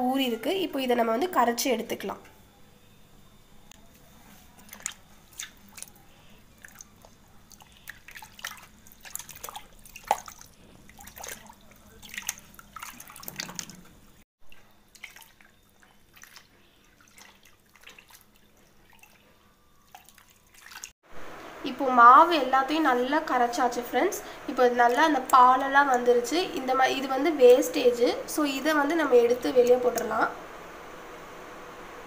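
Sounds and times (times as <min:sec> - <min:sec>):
dough squelching in water: 0:04.0 - 0:21.0.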